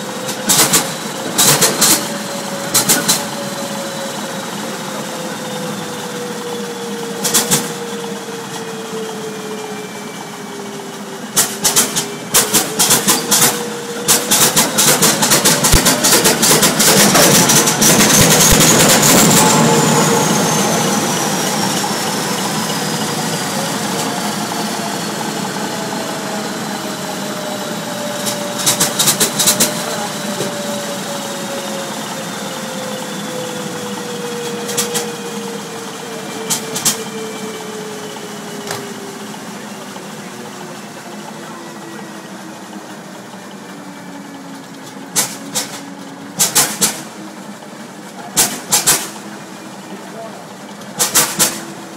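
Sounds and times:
diesel engine running: 0.0 - 51.9
loud rapid sharp cracks: 46.4 - 47.1, 48.4 - 49.2, 51.0 - 51.7.

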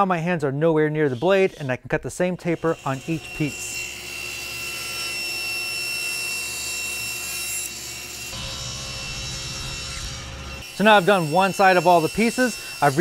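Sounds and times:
table saw ripping wood: 2.5 - 13.0.

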